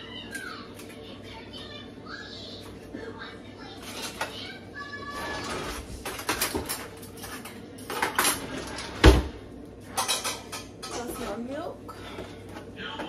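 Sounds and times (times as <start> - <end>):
spoon and containers clinking: 6.0 - 8.8, 9.9 - 12.1.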